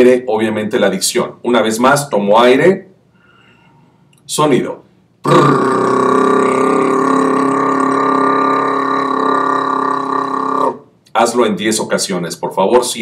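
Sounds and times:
man's rolled trill: 5.2 - 10.8.

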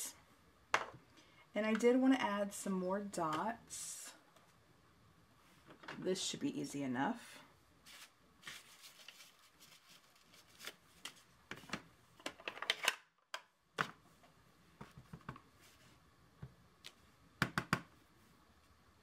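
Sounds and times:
plastic packaging crinkling: 7.9 - 11.2.

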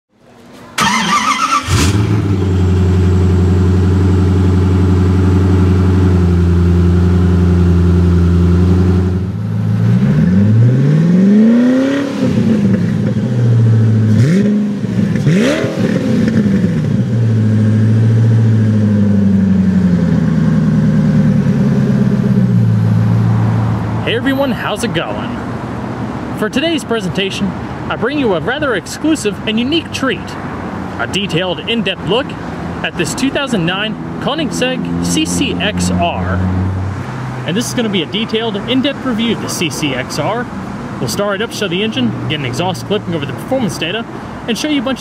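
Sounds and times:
car engine idling and revving: 0.8 - 26.4, 29.2 - 44.9.

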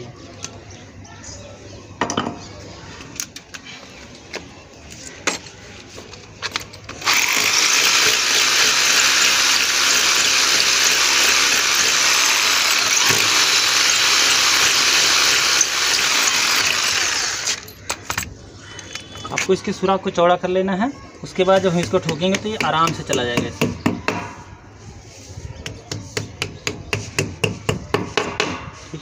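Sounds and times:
hammer drill drilling into brick: 7.0 - 17.7.

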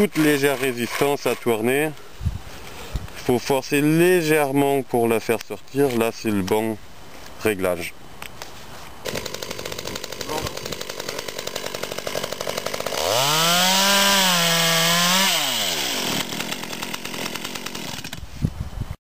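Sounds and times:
chainsaw idling and revving: 9.0 - 18.2
chainsaw cutting branch: 9.0 - 18.3.

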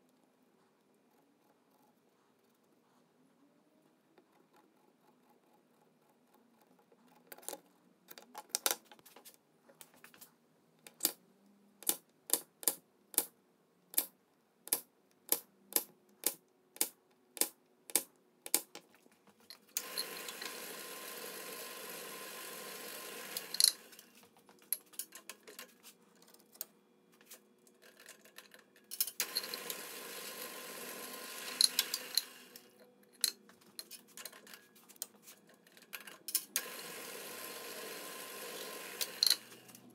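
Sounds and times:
drill press motor running: 19.8 - 24.1, 29.2 - 32.7, 36.6 - 39.8
clicks of tools and wood: 23.3 - 29.8, 31.5 - 36.6.

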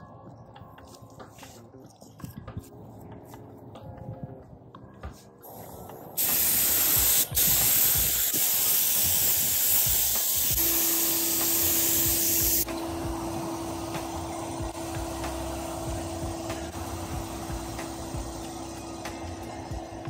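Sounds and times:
spray gun hissing: 5.6 - 19.1
steady hum: 10.6 - 20.0.

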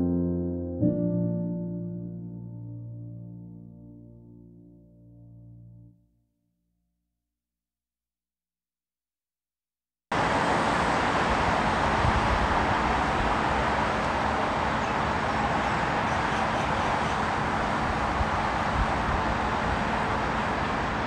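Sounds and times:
highway traffic: 10.1 - 21.0.

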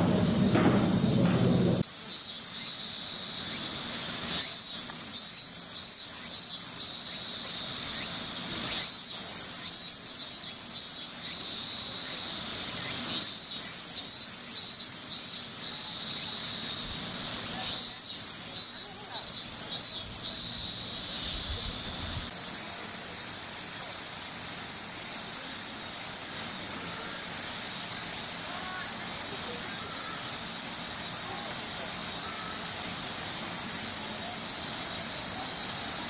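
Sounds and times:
low murmur: 0.0 - 1.8
insects chirring: 0.0 - 36.0.

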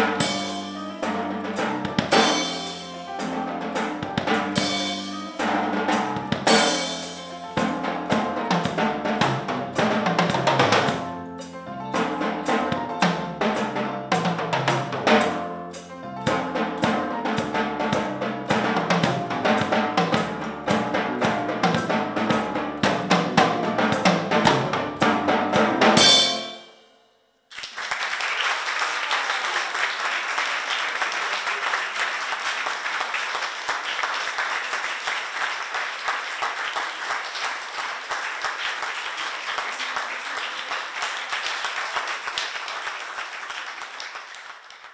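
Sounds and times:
accompanying music: 0.0 - 26.9
drum kit playing: 0.0 - 26.9
audience applause: 27.5 - 44.9.

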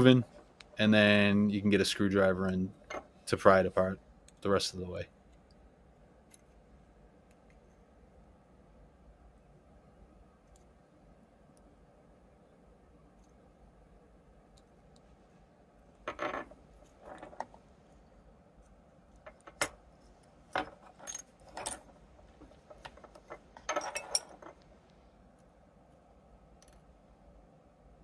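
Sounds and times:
small parts tapping: 18.6 - 19.8, 26.5 - 27.0.

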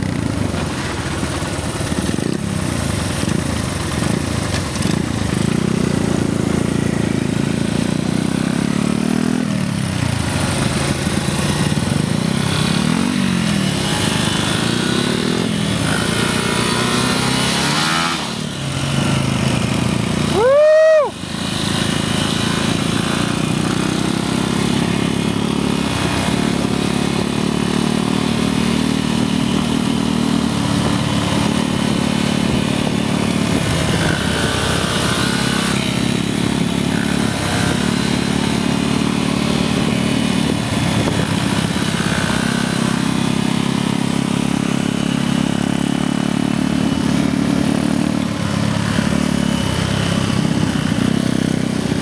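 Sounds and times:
motorcycle engine running: 0.0 - 52.0
wind noise on microphone: 40.3 - 42.0.

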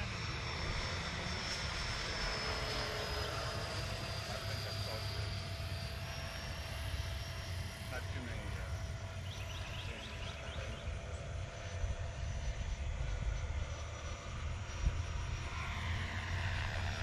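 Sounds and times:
model jet fan whining: 0.0 - 17.0.

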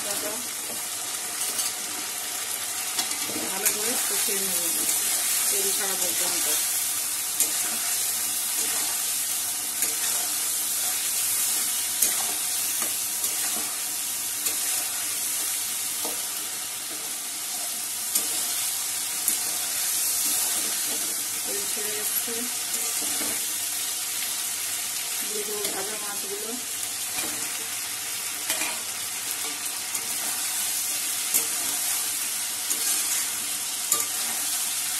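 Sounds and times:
food sizzling in hot oil: 0.0 - 34.9
spatula scraping a pan: 9.8 - 13.8.

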